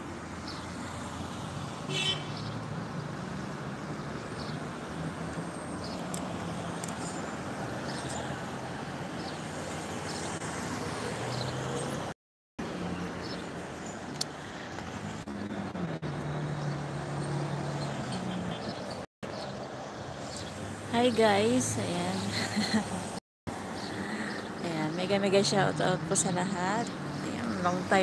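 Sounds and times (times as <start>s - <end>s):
car engines humming: 0.0s - 28.0s
road noise: 0.0s - 28.0s.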